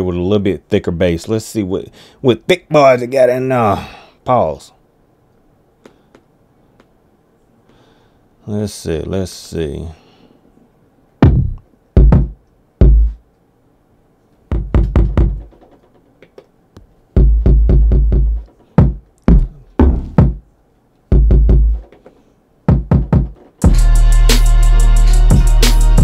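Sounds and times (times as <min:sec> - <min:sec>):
deep bass hits: 0:11.2 - 0:13.2, 0:14.5 - 0:15.5, 0:17.2 - 0:20.4, 0:21.1 - 0:21.8.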